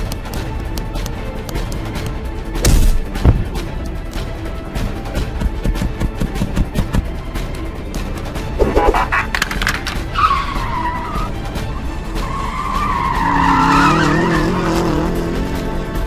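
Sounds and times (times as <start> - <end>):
car tyres squealing: 8.6 - 15.4.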